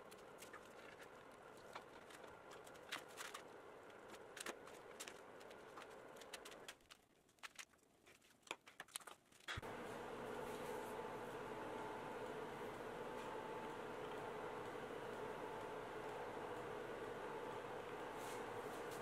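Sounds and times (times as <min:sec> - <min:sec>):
steady hum: 0:09.6 - 0:19.0.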